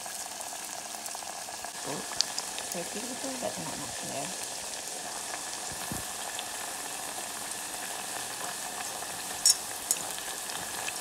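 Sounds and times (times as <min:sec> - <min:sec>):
fries sizzling in hot oil: 0:00.0 - 0:11.0
oil popping: 0:01.7 - 0:02.8, 0:04.6 - 0:11.0.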